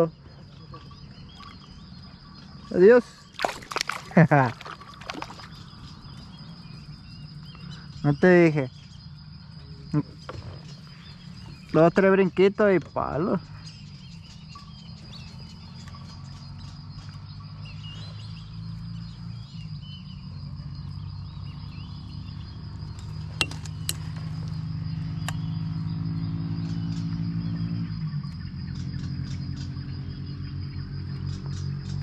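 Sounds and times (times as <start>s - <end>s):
bird chirps: 0.0s - 32.0s
insects trilling: 0.0s - 32.0s
low droning hum: 0.2s - 12.5s, 13.4s - 32.0s.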